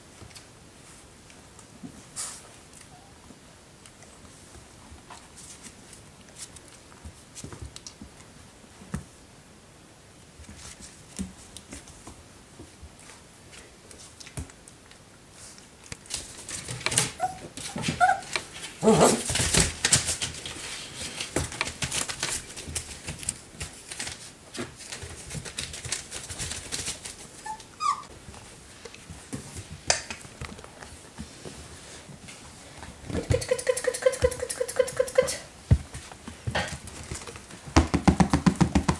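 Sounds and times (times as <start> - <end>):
puppies whimpering and squeaking: 17.0 - 18.4, 27.4 - 28.1, 33.3 - 35.4.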